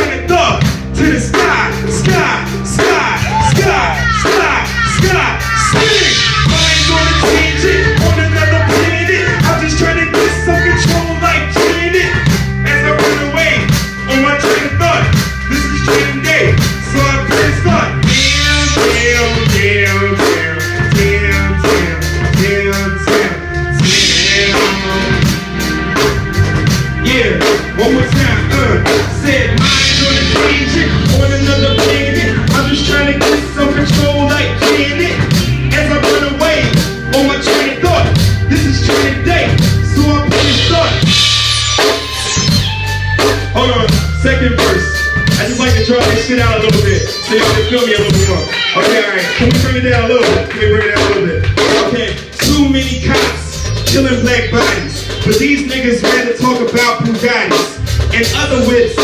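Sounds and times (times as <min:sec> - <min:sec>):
hip-hop beat through pa: 0:00.0 - 0:59.0
vocal line over beat: 0:00.0 - 0:59.0.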